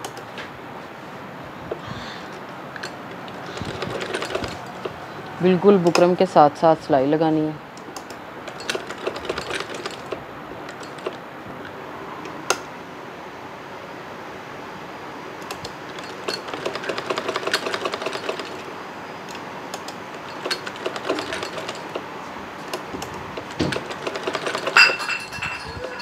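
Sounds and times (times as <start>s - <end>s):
sewing machine stitching: 3.3s - 5.0s, 8.5s - 11.2s, 15.5s - 18.7s, 19.9s - 24.8s.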